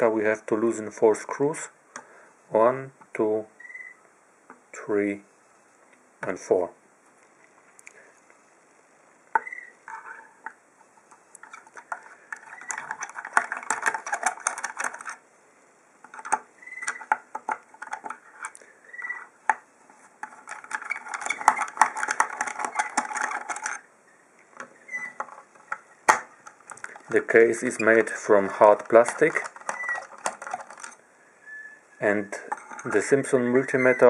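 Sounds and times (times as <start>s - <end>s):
screw squeaks: 9.4s - 10.4s, 11.4s - 15.2s, 16.2s - 17.2s, 18.0s - 19.4s, 20.3s - 23.8s, 24.6s - 26.0s, 27.1s - 34.0s
screwdriver clicking and scraping: 11.3s - 15.2s, 16.1s - 19.2s, 20.2s - 23.8s, 24.6s - 31.0s.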